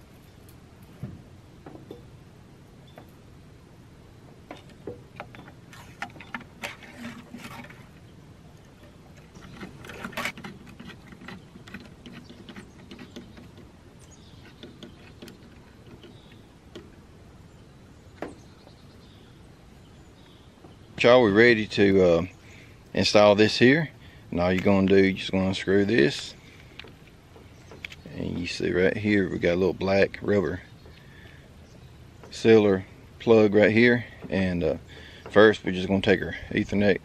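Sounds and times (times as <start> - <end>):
short metal scrapes: 5.7 - 8.0.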